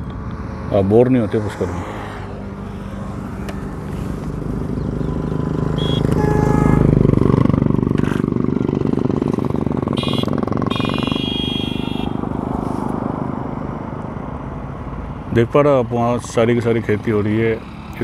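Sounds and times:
wind and road noise: 0.0 - 18.0
motorcycle engine running: 2.8 - 12.5.

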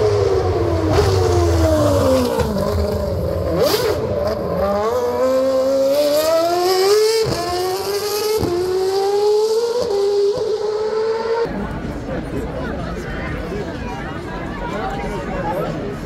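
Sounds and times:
race car engine accelerating: 0.0 - 11.5.

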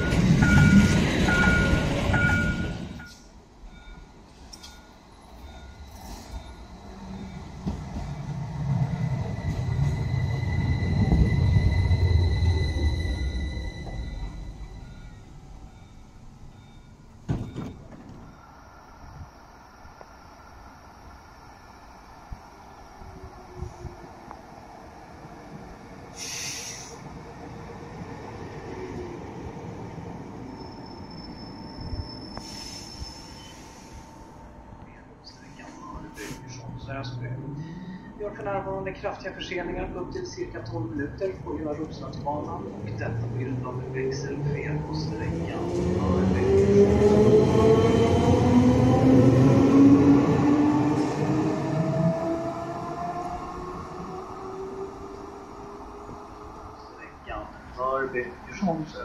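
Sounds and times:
tram rumbling on rails: 0.0 - 59.0
high squeal: 9.4 - 15.3, 30.4 - 34.0
short hiss: 26.2 - 27.0.

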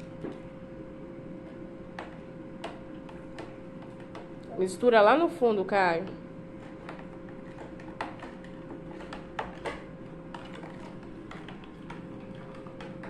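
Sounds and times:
faint steady hum: 0.0 - 13.0
plastic spoon stirring in a jug: 1.9 - 4.5, 6.5 - 13.0.

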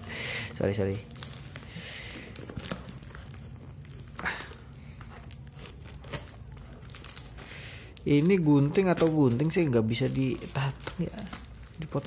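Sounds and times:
plastic wrapping crinkling: 0.0 - 12.0
scissors cutting plastic: 3.9 - 7.4, 8.0 - 12.0.

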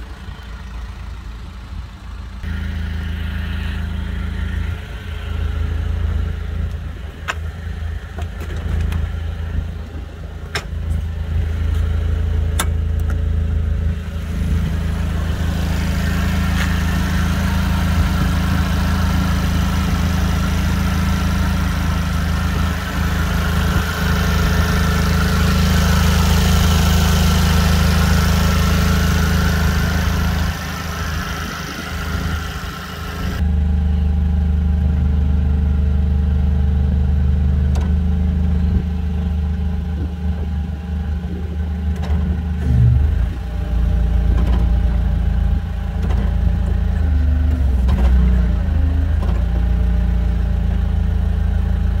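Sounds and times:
forklift engine idling: 0.0 - 52.0.

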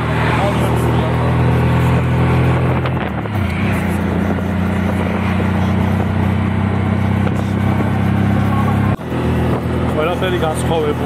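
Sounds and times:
road noise: 0.0 - 11.0
small engine running: 0.0 - 11.0
wind noise: 1.3 - 10.0.

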